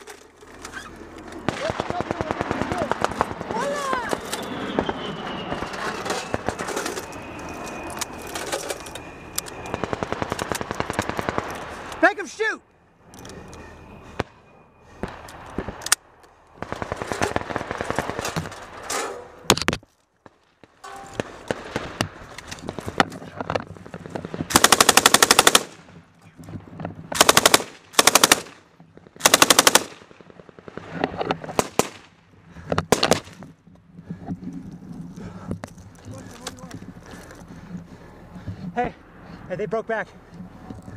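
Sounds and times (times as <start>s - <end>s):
machine gun bursts: 24.5s - 25.8s, 27.2s - 28.5s, 29.2s - 30.0s.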